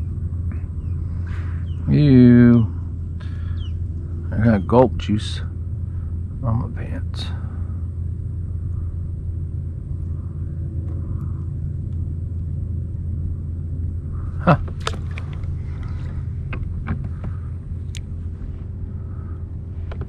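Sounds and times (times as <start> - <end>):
steady low rumble: 0.0 - 20.0
fishing gear clicking: 14.6 - 17.2.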